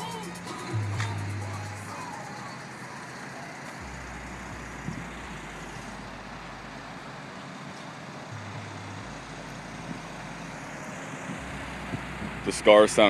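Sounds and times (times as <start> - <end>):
deep bass from subwoofers: 0.0 - 2.0, 3.8 - 7.3, 8.3 - 13.0.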